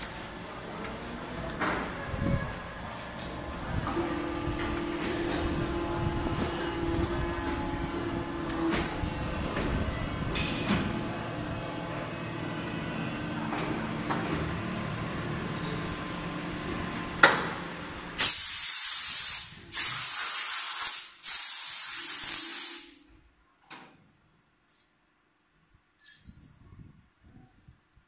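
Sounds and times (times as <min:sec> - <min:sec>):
press machinery hum: 0:00.0 - 0:20.2
light clinks: 0:24.6 - 0:26.7.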